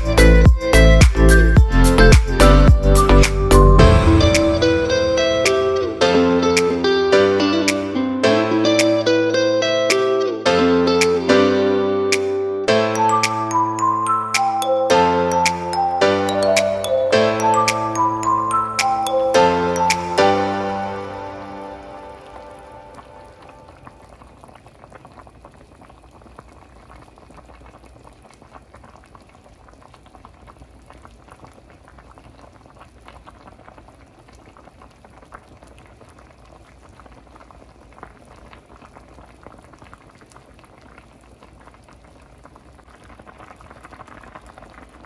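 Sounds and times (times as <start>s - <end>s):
food boiling in a pot: 21.9s - 45.0s.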